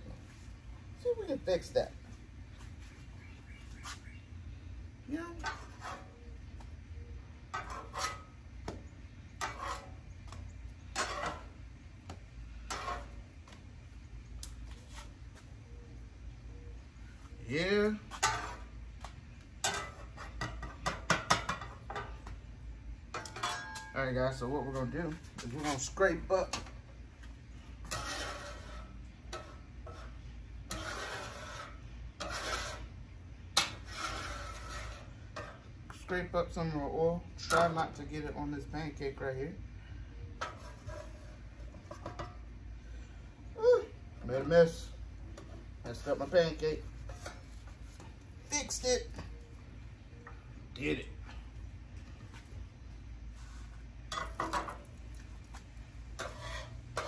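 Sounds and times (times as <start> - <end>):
steady low hum: 0.0 - 57.0
metal utensils scraping griddle: 5.3 - 6.3, 7.4 - 8.5, 9.3 - 10.2, 10.8 - 11.6, 12.6 - 13.3, 17.5 - 18.8, 19.6 - 22.2, 23.1 - 26.8, 27.6 - 36.6, 40.4 - 42.4, 44.3 - 48.0, 56.1 - 57.0.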